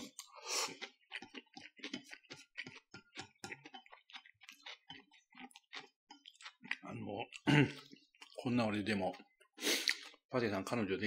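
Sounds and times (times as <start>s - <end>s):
person slurping noodles: 0.0s - 3.8s, 9.6s - 10.1s
chewing with mouth clicks: 0.0s - 10.3s.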